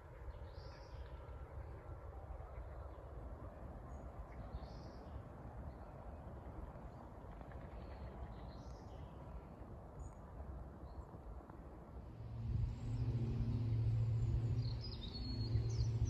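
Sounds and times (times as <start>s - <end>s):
low outdoor rumble: 11.3s - 16.0s.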